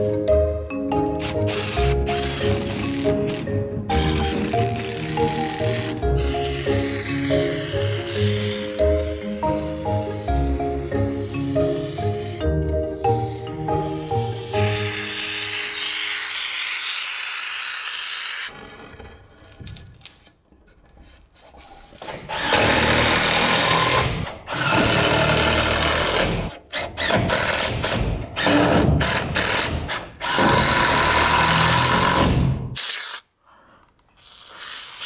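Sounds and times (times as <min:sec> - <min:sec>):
power drill driving screws: 0:01.0 - 0:09.2, 0:22.0 - 0:33.2.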